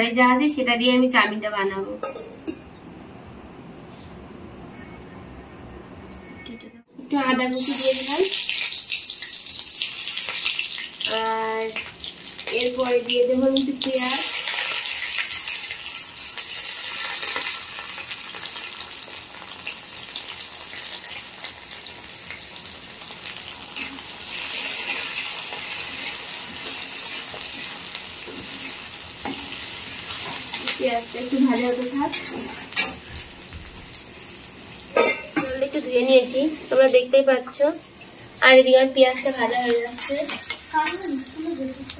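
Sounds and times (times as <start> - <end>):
onions sizzling in hot oil: 7.1 - 41.9
metal spatula scraping a pan: 31.6 - 33.0.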